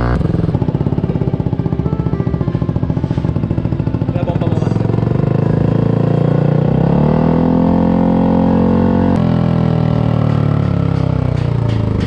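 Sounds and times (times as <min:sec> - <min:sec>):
scooter engine revving: 0:00.0 - 0:12.0.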